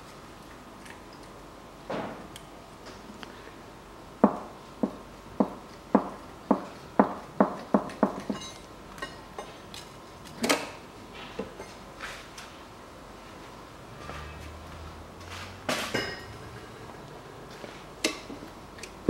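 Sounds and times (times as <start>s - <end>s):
faint metallic ringing: 15.9s - 16.9s.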